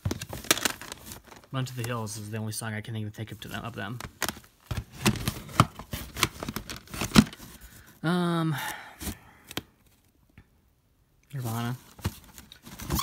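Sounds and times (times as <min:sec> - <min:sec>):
plastic cases clacking: 0:00.0 - 0:02.0, 0:03.9 - 0:07.6.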